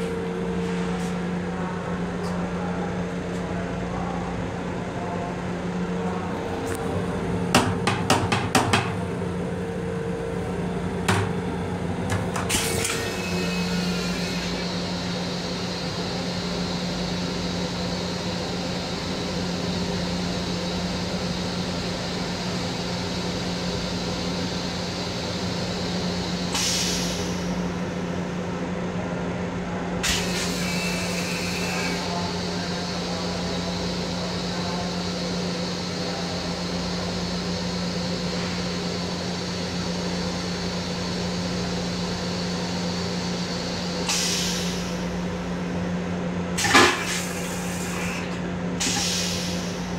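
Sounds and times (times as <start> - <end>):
train equipment hum and whine: 0.0 - 49.9
air hisses: 48.8 - 49.9.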